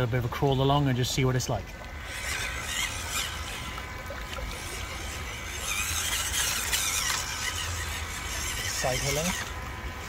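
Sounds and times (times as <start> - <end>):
toy truck motor whining: 2.0 - 10.0.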